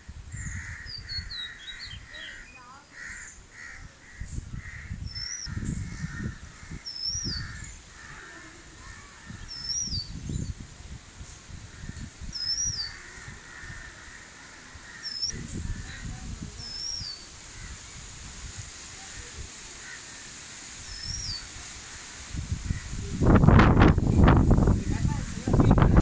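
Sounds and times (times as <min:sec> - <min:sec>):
wind buffeting microphone: 0:00.0 - 0:02.4, 0:03.0 - 0:19.7, 0:20.7 - 0:26.0
crows cawing: 0:00.5 - 0:09.5, 0:12.8 - 0:16.2, 0:17.5 - 0:18.0, 0:19.1 - 0:23.0.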